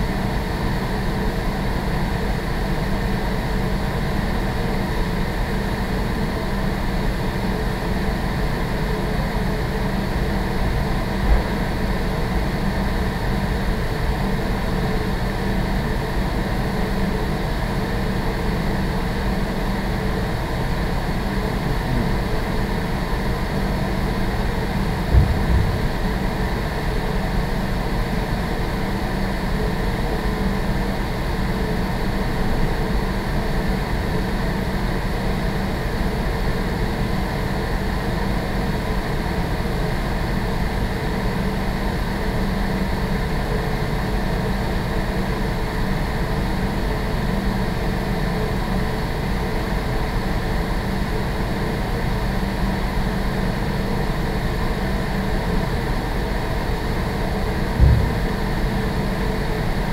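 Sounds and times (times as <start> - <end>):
ventilation hum: 0.0 - 59.9
low thumps: 24.9 - 26.6, 57.8 - 58.9.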